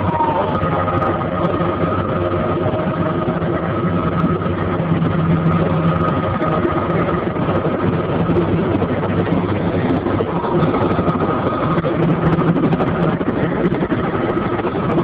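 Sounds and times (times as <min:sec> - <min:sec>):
helicopter engine and rotor drone: 0:00.0 - 0:15.0
high whine: 0:00.0 - 0:15.0.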